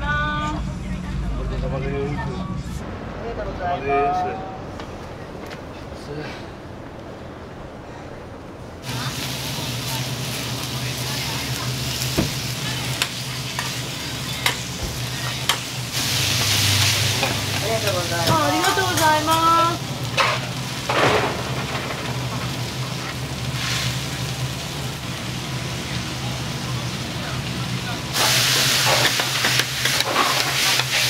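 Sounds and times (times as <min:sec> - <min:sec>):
food sizzling on griddle: 0:08.8 - 0:31.0.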